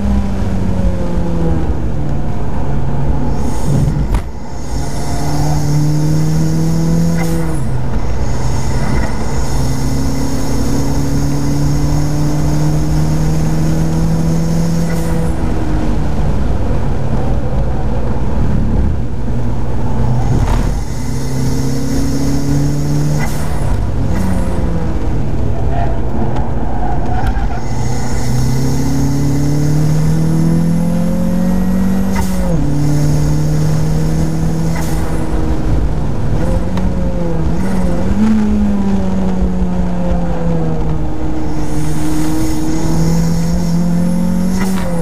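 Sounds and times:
car engine accelerating hard: 0.0 - 45.0
faint high whine: 3.1 - 25.3, 27.4 - 31.1.

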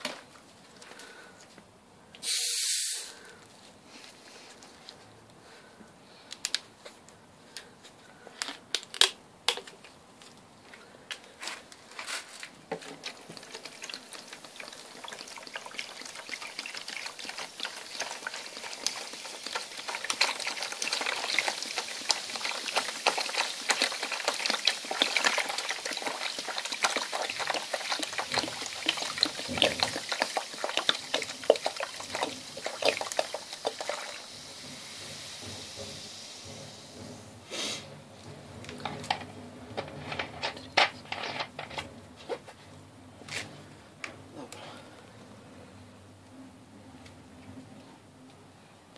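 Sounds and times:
fizzing hiss: 2.2 - 3.4, 13.3 - 38.2
soda glugging and splashing: 12.8 - 42.1
knocks: 34.6 - 42.4.

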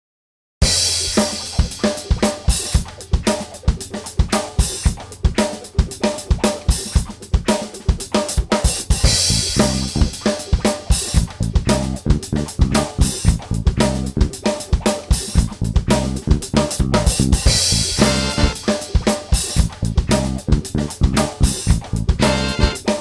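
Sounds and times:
upbeat music with drum beat: 0.6 - 23.0.

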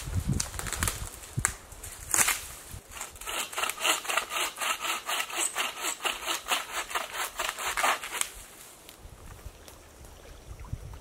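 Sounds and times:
hand saw cutting wood: 2.9 - 8.3.

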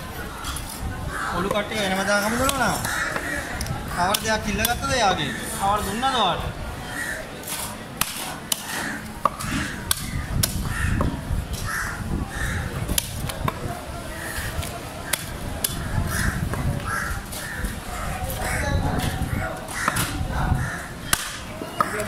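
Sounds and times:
background hubbub: 0.0 - 22.0
birds cawing: 2.2 - 3.6, 8.6 - 12.8, 15.9 - 22.0.

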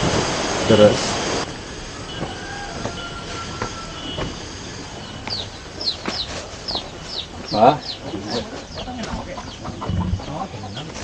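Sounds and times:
outdoor hiss: 0.0 - 8.6
chicks peeping: 2.1 - 11.0
footsteps on stone path: 2.2 - 11.0.

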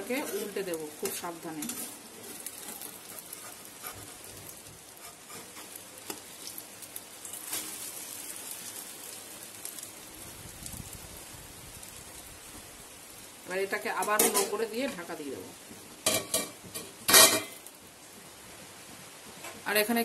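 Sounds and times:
omelette sizzling in a pan: 0.0 - 20.0.

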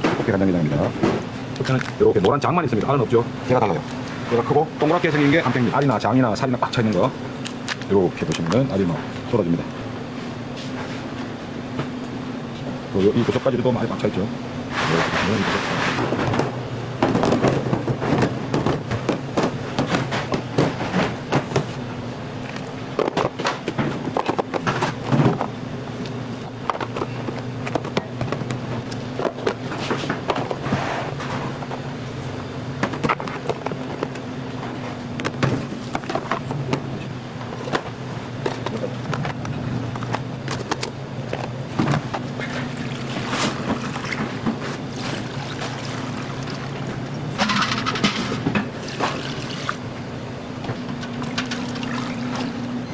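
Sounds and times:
low machine hum: 0.0 - 52.9
plastic trays clattering on steel table: 47.4 - 48.7.

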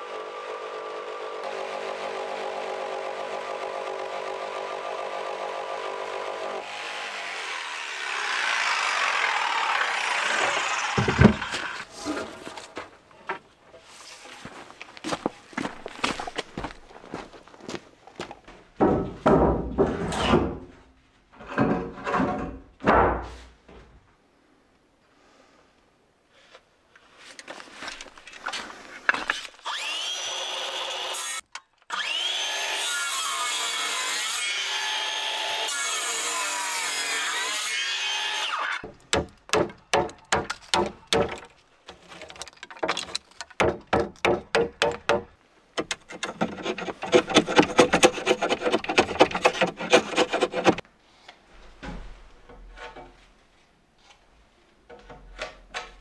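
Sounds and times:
circular saw cutting wood: 0.0 - 12.5, 29.3 - 38.9, 45.8 - 50.8
rasping scrapes on wood: 45.9 - 50.8.

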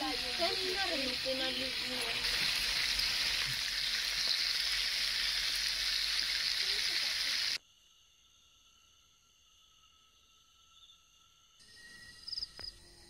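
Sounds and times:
sizzling hiss: 0.0 - 7.6
faint insect calls: 0.0 - 13.0.

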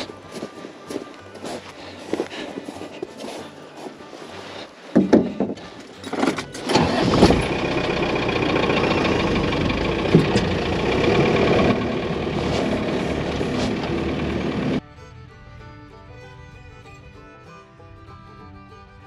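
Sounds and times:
knocks: 5.0 - 5.6
vehicle engine starting and running: 6.0 - 14.8.

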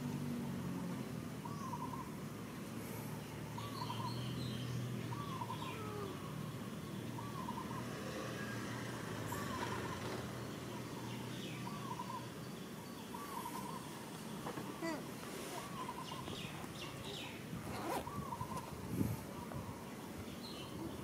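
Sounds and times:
faint high bird chirps: 3.5 - 18.7.

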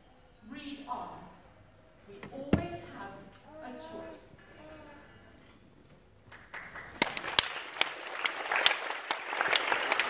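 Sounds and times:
audience applause: 6.3 - 10.0.

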